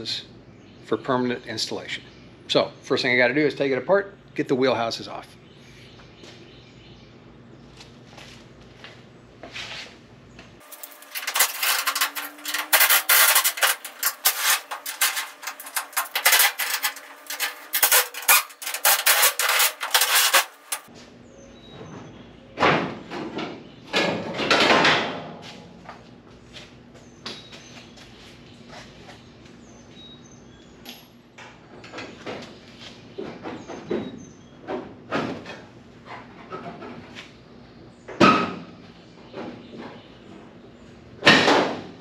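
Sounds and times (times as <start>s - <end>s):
metal scraping: 10.6s - 20.9s
tools clicking on sheet metal: 10.6s - 20.9s.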